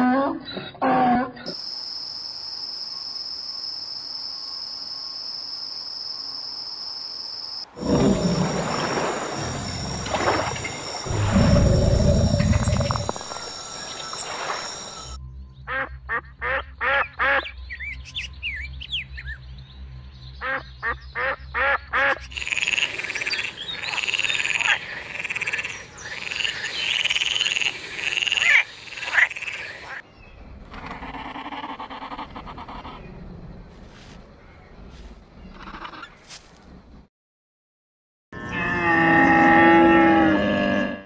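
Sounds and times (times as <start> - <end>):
frog croaking: 7.7 - 15.2, 22.1 - 30.0
low rumble: 7.8 - 13.7.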